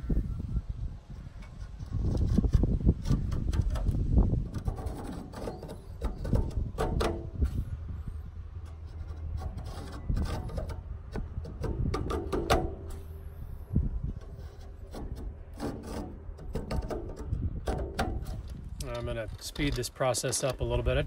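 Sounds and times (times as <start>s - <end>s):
comb scraping metal fins: 1.2s - 21.0s.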